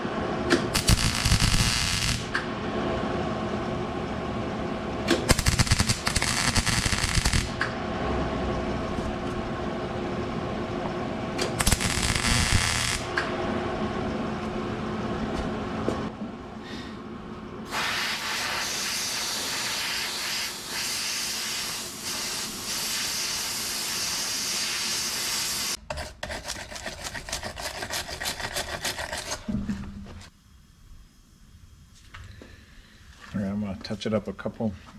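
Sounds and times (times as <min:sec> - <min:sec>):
welding arc crackling: 0:00.5 - 0:02.4, 0:05.1 - 0:07.7, 0:11.4 - 0:13.3, 0:17.8 - 0:25.8
hand tool scraping metal: 0:25.9 - 0:29.6
long steady hiss: 0:30.3 - 0:34.1.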